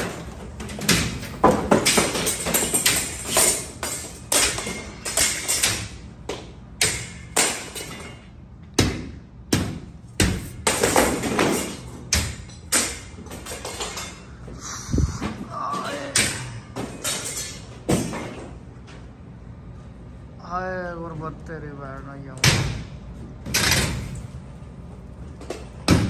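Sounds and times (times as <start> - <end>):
ceiling tiles clattering down: 0.0 - 5.9, 10.6 - 14.3, 16.0 - 18.5.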